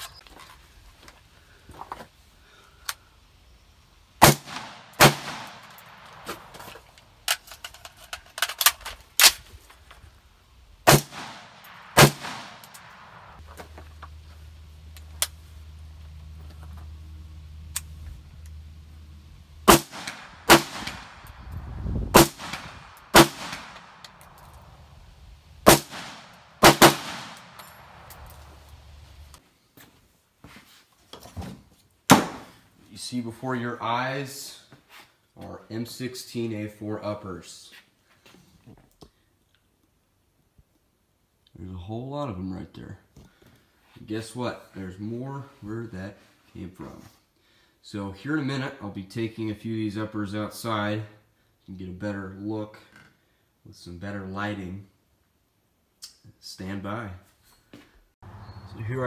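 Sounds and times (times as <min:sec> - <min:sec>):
gunshots with echo: 0:04.2 - 0:06.3, 0:10.9 - 0:13.4, 0:19.7 - 0:21.3, 0:22.1 - 0:24.0, 0:25.7 - 0:28.1.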